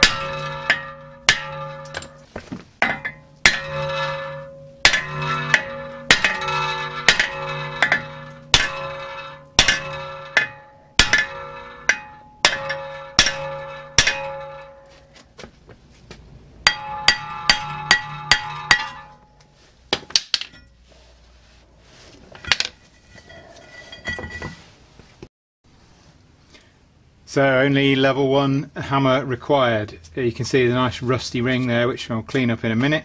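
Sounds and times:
hammer striking ringing metal disc: 0.0 - 15.1, 16.6 - 19.4.

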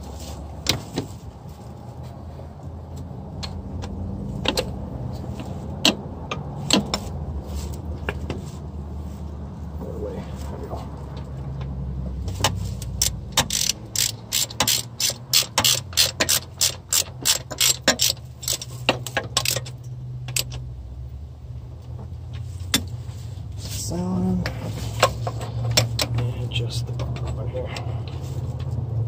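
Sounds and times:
hand ratchet clicking: 12.4 - 20.6.

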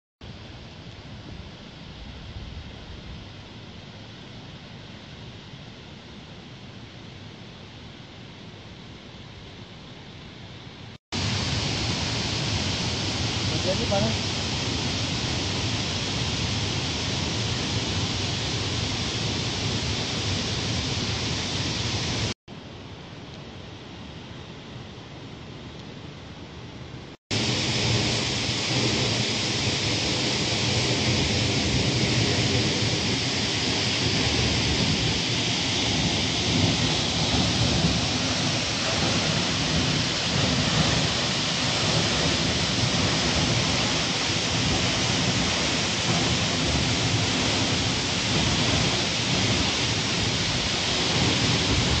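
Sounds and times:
waterfall pouring onto rock: 11.2 - 22.4, 27.3 - 52.0.

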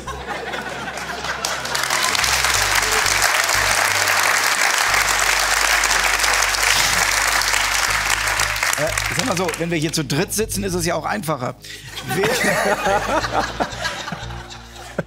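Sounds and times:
background music with bass line: 0.0 - 15.0
studio audience applauding: 0.4 - 10.1.

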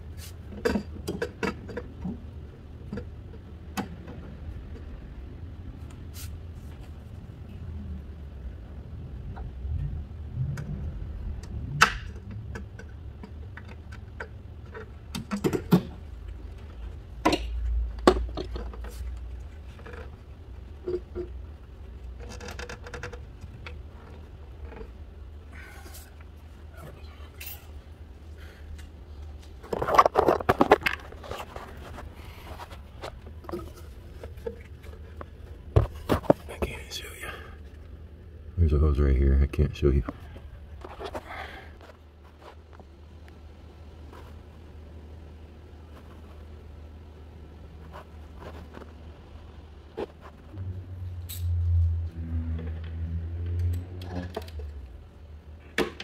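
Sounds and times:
steady low hum: 0.0 - 56.0
clicks scrapes and knocks: 29.4 - 36.7.

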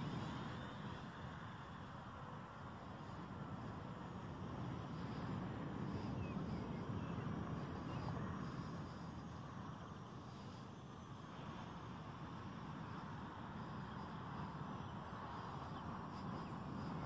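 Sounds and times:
wind on microphone: 0.0 - 17.0.

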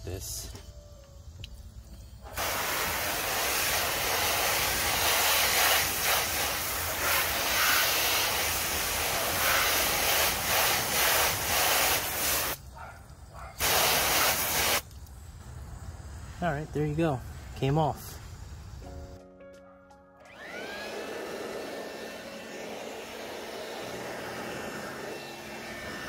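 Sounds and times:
hose nozzle spray hissing: 2.3 - 12.6, 13.6 - 15.0.

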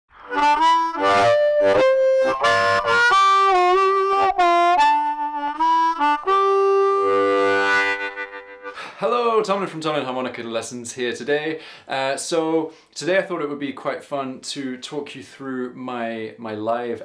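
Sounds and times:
amplified harmonica: 0.1 - 9.0.

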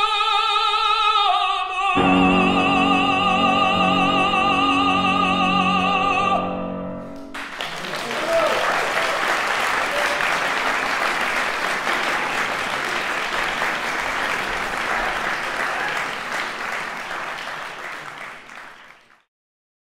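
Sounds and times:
audience applauding: 7.3 - 19.3.

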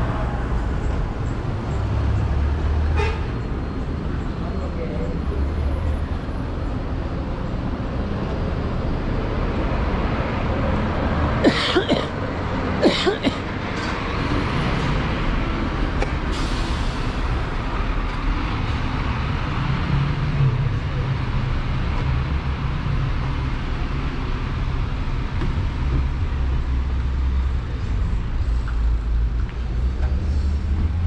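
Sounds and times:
motor vehicles passing: 0.0 - 16.3.

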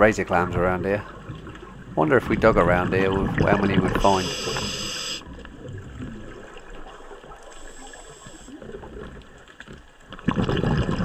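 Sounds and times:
rush of bubbles: 2.3 - 9.2, 10.1 - 11.0
underwater water hiss: 3.9 - 5.3, 7.3 - 8.8.

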